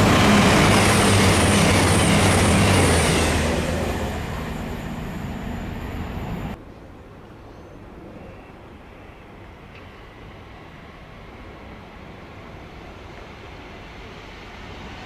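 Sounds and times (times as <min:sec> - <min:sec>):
train wheels rushing on rails: 0:00.0 - 0:06.6, 0:09.5 - 0:15.0.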